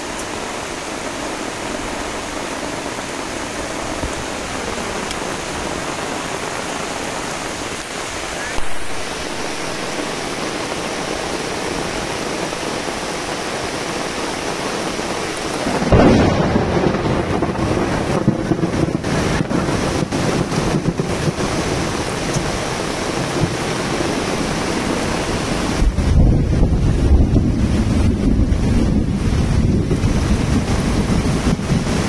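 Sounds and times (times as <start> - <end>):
rain hissing: 0.0 - 32.0
loud low rumble: 15.8 - 18.9.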